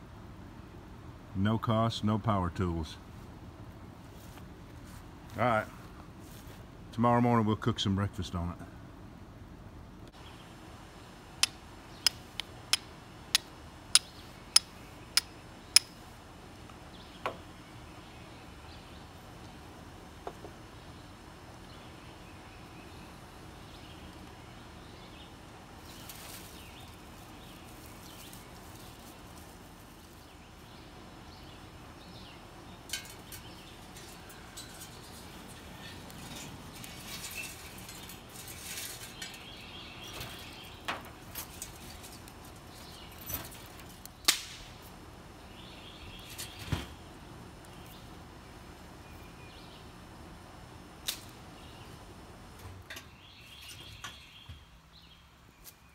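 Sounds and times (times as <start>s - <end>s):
tinder crackling: 25.1s - 49.0s, 50.6s - 52.6s
scraping: 32.9s - 39.5s
sticks snapping: 44.0s - 44.7s.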